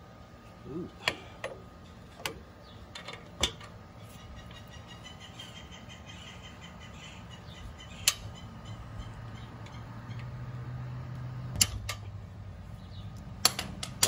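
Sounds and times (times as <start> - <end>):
sharp metallic click: 8.0 - 8.3, 11.5 - 12.0.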